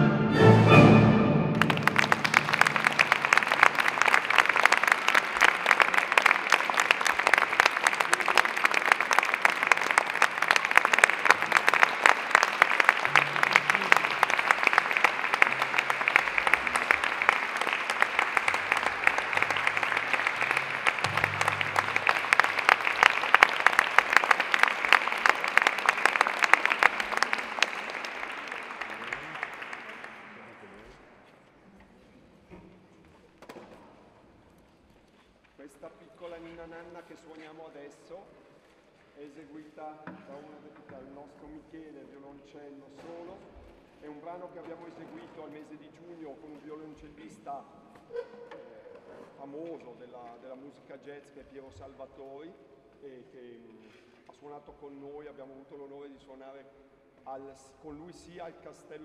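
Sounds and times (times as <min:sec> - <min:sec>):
audience applause: 0:01.4 - 0:31.0.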